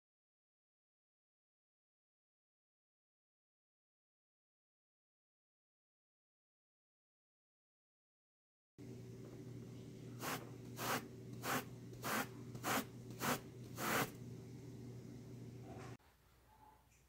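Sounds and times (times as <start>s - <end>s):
balloon rubbing on cloth: 10.2s - 14.2s.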